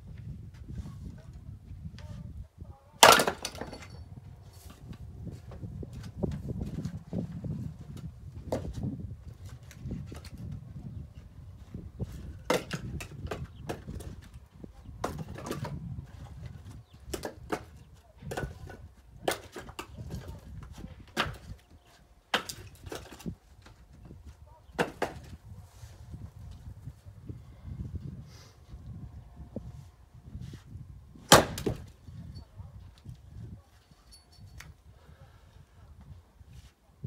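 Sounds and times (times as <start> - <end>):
firewood knocking and clattering: 3.0 - 4.0, 12.5 - 14.4, 15.0 - 21.6, 31.3 - 32.0.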